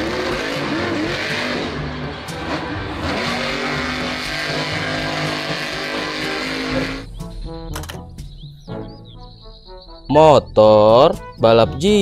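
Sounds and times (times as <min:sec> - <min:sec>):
truck engine running hard: 0:00.0 - 0:08.3.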